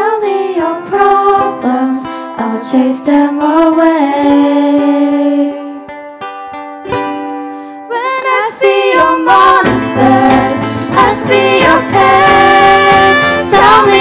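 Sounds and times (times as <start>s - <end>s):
person singing: 0.0s - 5.9s, 7.9s - 14.0s
ukulele band playing: 0.0s - 14.0s
cajon: 9.6s - 14.0s.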